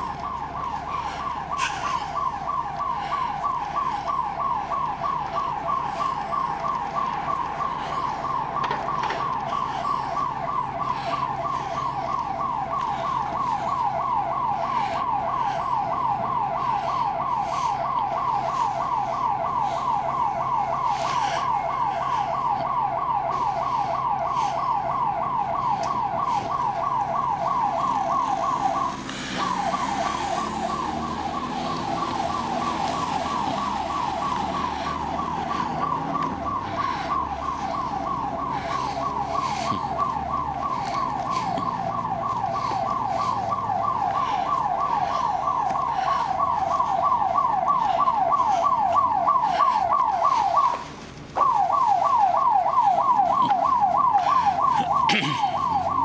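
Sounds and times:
security alarm siren wailing: 0.0 - 56.0.

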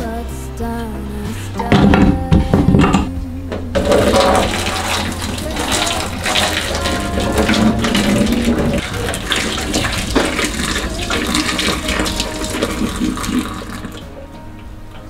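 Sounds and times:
song playing: 0.0 - 15.0
water pouring into metal sink: 3.8 - 14.1.

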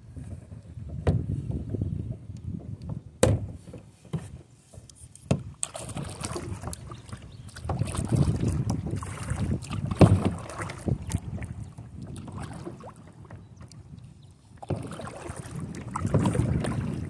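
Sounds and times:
kayak paddle splashing: 5.1 - 17.0.

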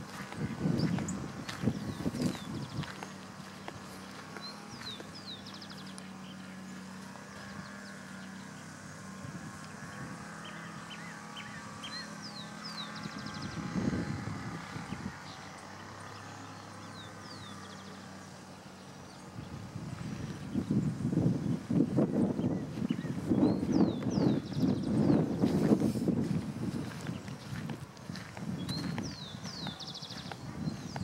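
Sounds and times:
footsteps rustling: 0.0 - 5.3, 22.7 - 31.0
steady low hum: 0.0 - 31.0
birds whistling and chirping: 0.1 - 6.4, 9.9 - 14.0, 20.5 - 31.0.

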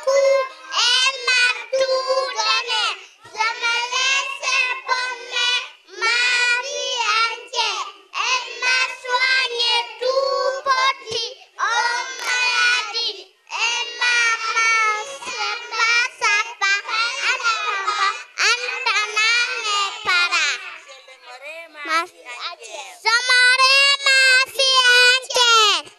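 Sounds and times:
children singing into a microphone: 0.0 - 20.8.

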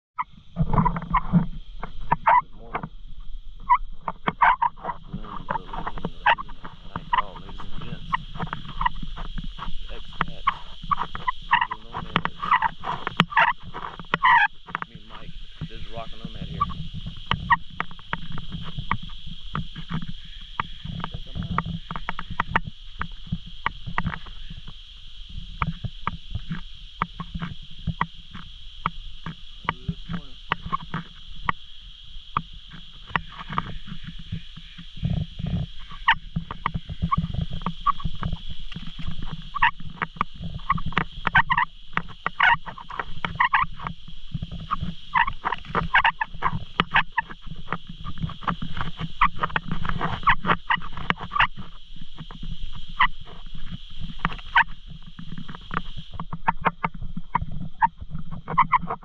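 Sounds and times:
high-pitched drone: 0.2 - 19.1
croaking animal calls: 0.2 - 59.0.

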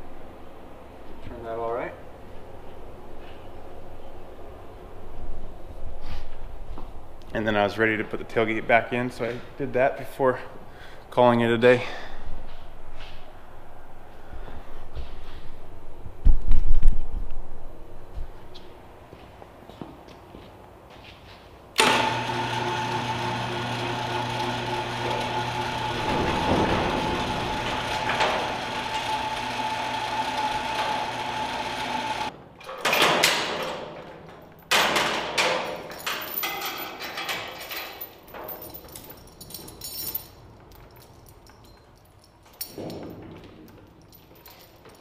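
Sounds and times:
electric hoist motor humming: 21.8 - 32.8
metal chain clanks and rattles: 26.0 - 28.5, 32.6 - 45.0.

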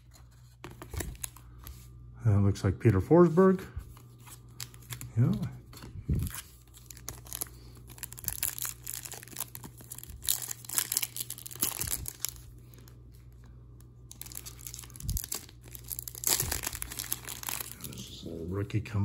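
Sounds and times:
plastic wrapper crinkling and tearing: 0.1 - 1.6, 4.0 - 18.2.

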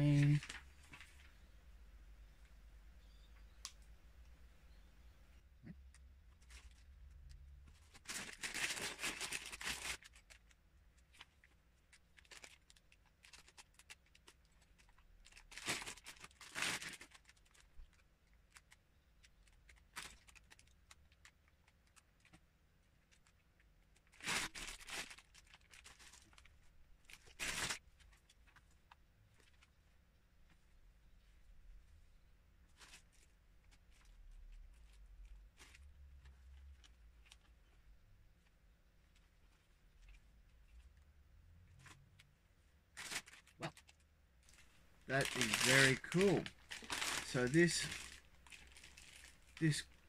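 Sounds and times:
paper booklets rustling: 0.0 - 1.5, 7.7 - 10.5, 32.7 - 37.8, 43.0 - 50.0
plastic bags crinkling: 0.0 - 1.5, 7.8 - 11.3, 11.9 - 22.2, 24.0 - 28.7, 42.9 - 50.0.

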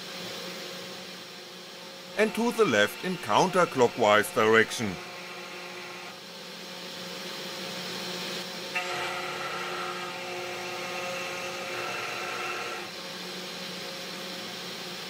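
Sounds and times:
spindle motor whine: 2.0 - 6.7, 8.4 - 13.6.

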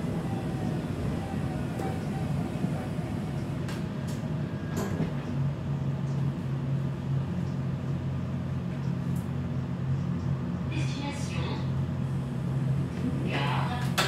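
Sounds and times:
low motor hum: 0.0 - 10.8
tram wheels rumbling on rail: 0.0 - 14.0.

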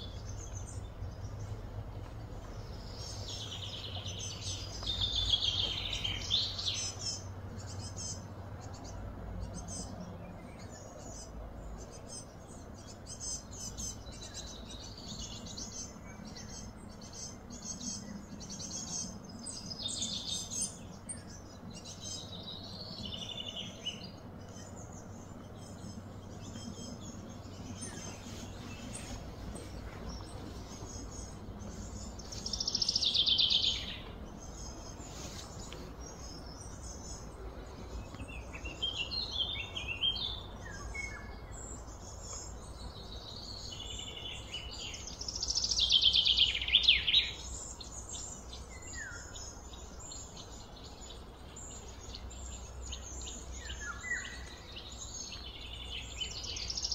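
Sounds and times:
low background hum: 0.0 - 56.9
wild birds chirping and calling: 0.0 - 56.9.

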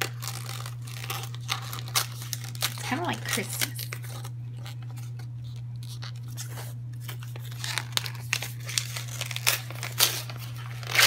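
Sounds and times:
paper tearing: 0.0 - 11.0
wrapping paper crinkling: 0.0 - 11.0.

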